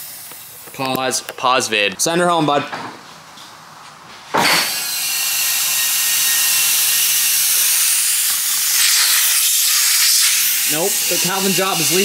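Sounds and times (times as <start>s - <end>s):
compressed air hissing: 0.0s - 0.6s, 7.0s - 12.0s.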